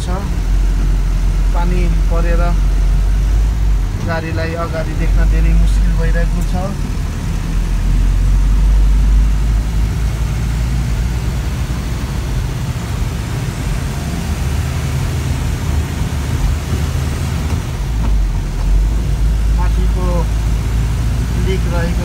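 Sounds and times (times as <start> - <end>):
engine and road rumble: 0.0 - 22.0
rain and wet tyres hiss: 8.3 - 22.0.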